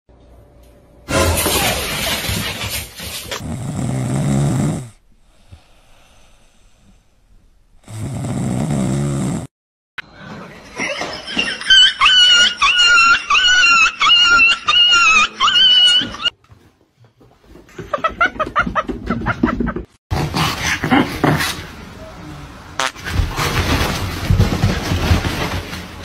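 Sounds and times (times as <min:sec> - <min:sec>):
dog snoring: 0:03.4 - 0:05.6, 0:07.8 - 0:09.5.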